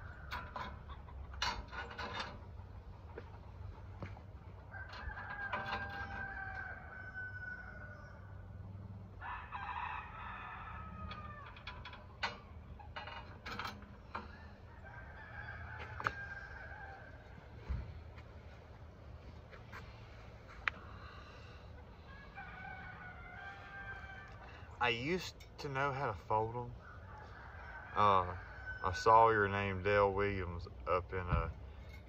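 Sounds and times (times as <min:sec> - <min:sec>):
rooster crowing: 0:00.0 - 0:00.9, 0:04.7 - 0:12.1, 0:14.2 - 0:17.6, 0:20.9 - 0:25.2, 0:26.8 - 0:29.7.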